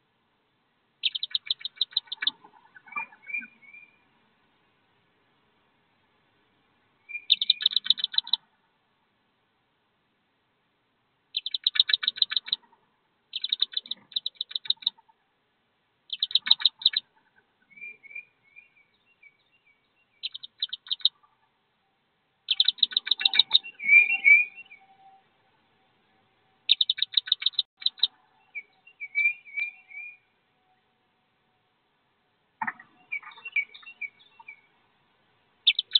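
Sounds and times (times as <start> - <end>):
duckling peeping: 1.0 - 3.9, 7.1 - 8.4, 11.3 - 12.7, 13.3 - 15.1, 16.1 - 19.0, 20.2 - 21.4, 22.4 - 24.8, 26.6 - 30.2, 35.6 - 35.9.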